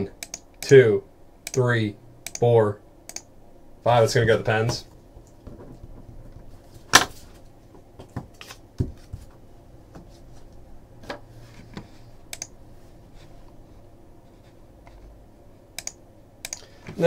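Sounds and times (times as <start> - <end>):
mouse clicking: 0.2 - 0.8, 2.2 - 2.4, 3.1 - 3.3, 12.3 - 12.5, 15.8 - 16.7.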